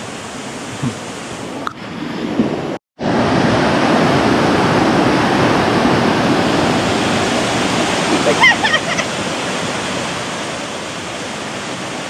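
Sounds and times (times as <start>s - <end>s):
stream rushing over rocks: 3.0s - 12.0s.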